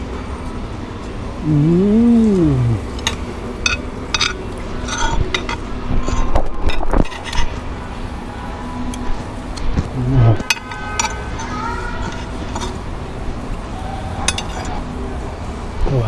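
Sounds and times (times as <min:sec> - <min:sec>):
steady low hum: 0:00.0 - 0:16.0
low hum with falling pitch: 0:00.9 - 0:03.1
metal spoon scraping a plate: 0:03.0 - 0:07.6, 0:10.4 - 0:12.8, 0:14.2 - 0:14.8.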